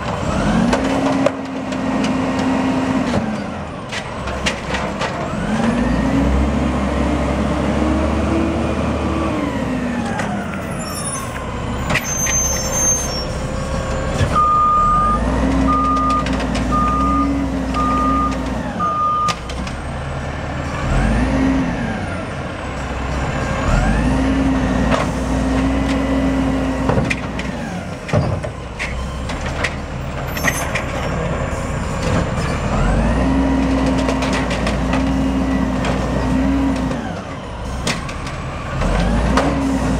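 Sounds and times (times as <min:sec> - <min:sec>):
diesel engine revving: 0:00.0 - 0:39.9
truck beeps: 0:10.2 - 0:24.2.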